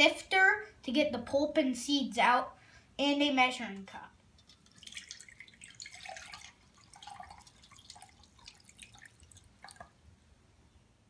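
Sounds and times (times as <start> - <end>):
juice trickling and dripping: 4.2 - 10.1.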